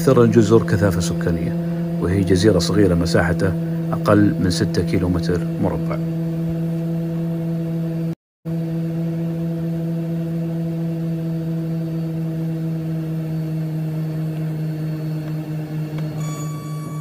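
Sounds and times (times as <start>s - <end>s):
propeller engines droning: 0.0s - 17.0s
high beeping tone: 16.2s - 17.0s.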